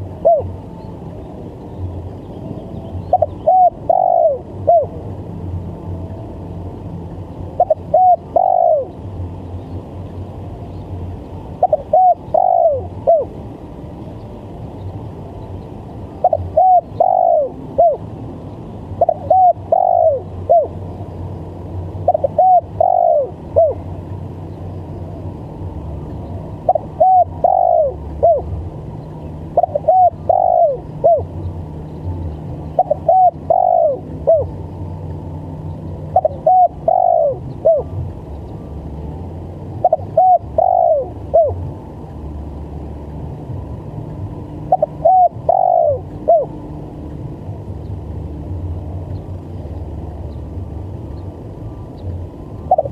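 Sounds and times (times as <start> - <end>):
dove cooing: 0.0 - 0.6, 3.0 - 5.0, 7.5 - 9.0, 11.6 - 13.4, 16.2 - 18.1, 19.0 - 20.8, 22.0 - 23.9, 26.6 - 28.6, 29.5 - 31.3, 32.7 - 34.6, 36.0 - 38.0, 39.8 - 41.7, 44.7 - 46.5, 52.6 - 52.9.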